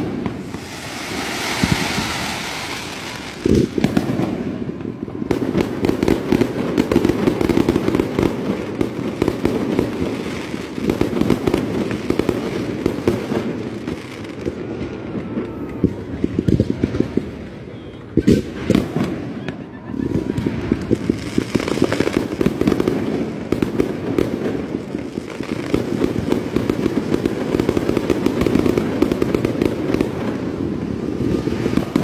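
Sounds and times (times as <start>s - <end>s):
firework hissing rush: 0.0s - 4.7s
heavy firework boom: 0.0s - 5.4s
fireworks crackling and popping: 0.0s - 32.0s.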